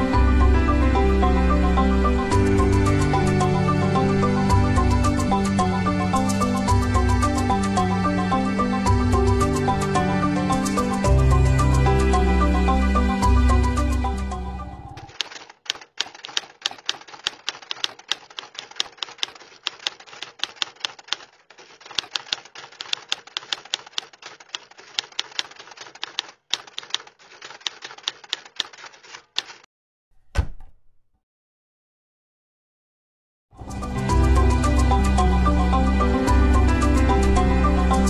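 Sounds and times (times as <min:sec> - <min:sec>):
typewriter keys clacking: 0:15.1 - 0:29.7
heavy thump: 0:30.2 - 0:30.9.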